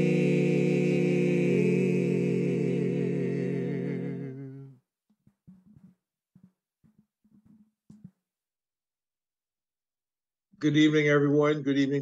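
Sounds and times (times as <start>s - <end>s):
vocal trio singing a chord: 0.0s - 4.8s.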